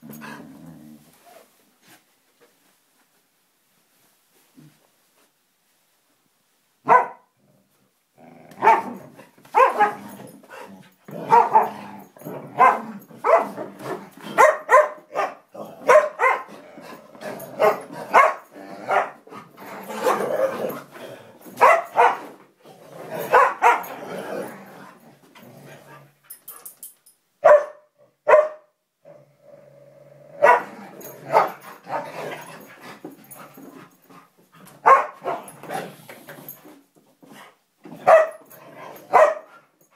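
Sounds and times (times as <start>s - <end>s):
dogs barking and growling: 0.0s - 1.1s, 6.9s - 26.8s, 27.5s - 36.5s, 37.8s - 39.8s.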